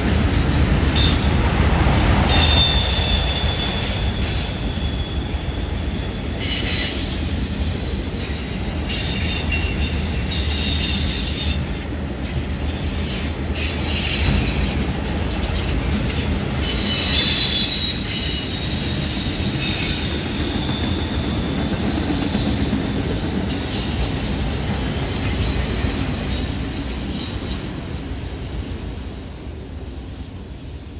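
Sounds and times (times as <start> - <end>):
steel wheels rumbling on rail: 0.0 - 30.9
high-pitched wheel squeal: 1.9 - 11.6, 16.4 - 22.8, 23.5 - 28.4.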